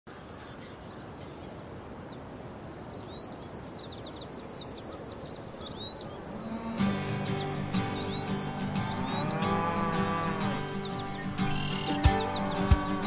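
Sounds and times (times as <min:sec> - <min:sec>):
low rush of wind: 0:00.1 - 0:13.0
small birds chirping: 0:00.1 - 0:13.0
cattle mooing: 0:06.1 - 0:13.0.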